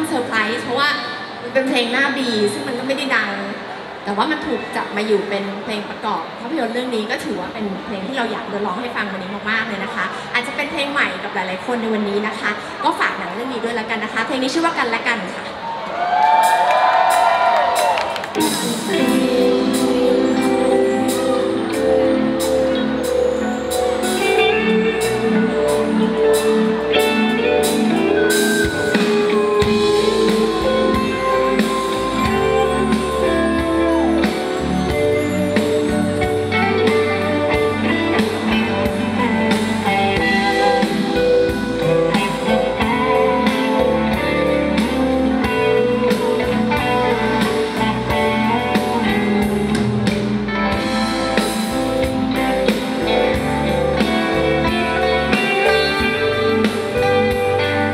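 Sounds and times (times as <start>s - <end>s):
pop band playing: 16.0s - 57.9s
held high note sliding down: 19.2s - 36.9s.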